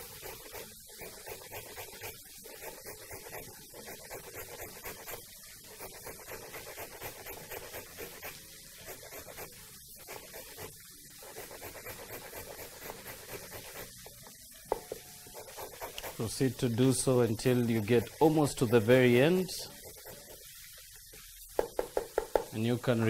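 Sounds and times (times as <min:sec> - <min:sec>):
carrot grating on metal grater: 0:05.8 - 0:09.4, 0:11.3 - 0:14.0, 0:15.4 - 0:20.3.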